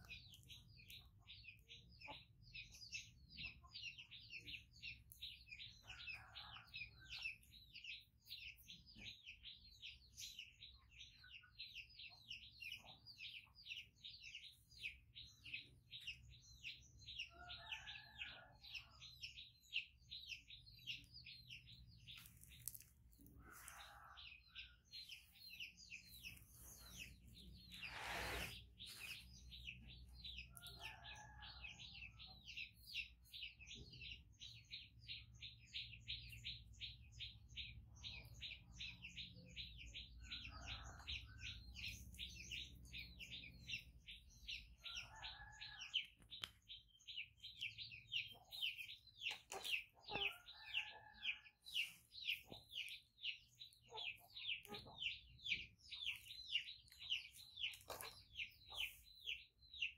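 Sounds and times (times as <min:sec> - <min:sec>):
faint bird chirping: 0:35.8 - 0:59.9.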